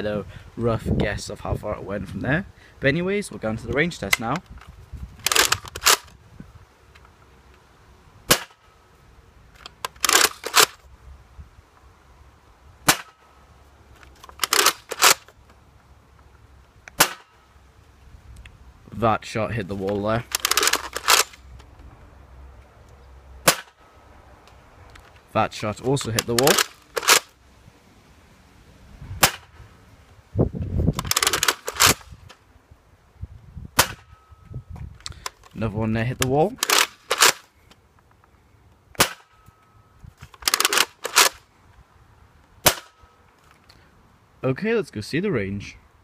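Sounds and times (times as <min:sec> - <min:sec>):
priming handle rattling: 0:04.4 - 0:06.1, 0:09.6 - 0:10.8, 0:14.0 - 0:15.4, 0:19.8 - 0:21.7, 0:25.8 - 0:27.3, 0:30.9 - 0:32.3, 0:36.6 - 0:37.5, 0:40.2 - 0:41.4.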